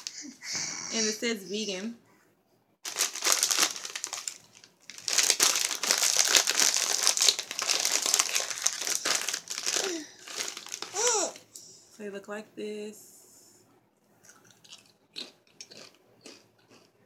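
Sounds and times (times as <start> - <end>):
chip bag crinkling: 2.8 - 11.4.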